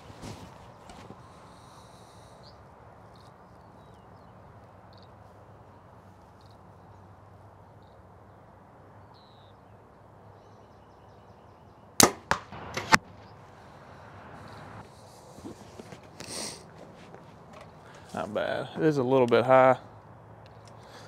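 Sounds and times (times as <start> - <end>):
compound bow shot crack: 12.0 - 13.1.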